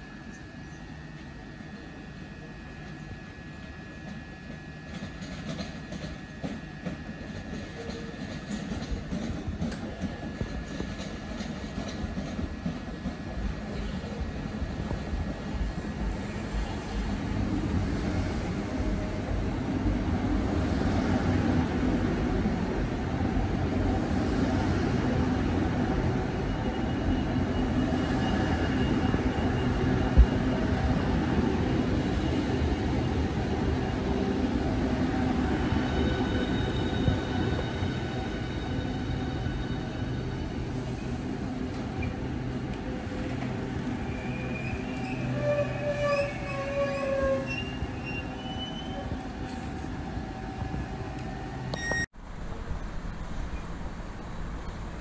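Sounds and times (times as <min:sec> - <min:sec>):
train motor hum: 0:00.0 - 0:37.3
train wheels rumbling on rails: 0:01.0 - 0:51.7
high squealing tones: 0:44.0 - 0:49.1.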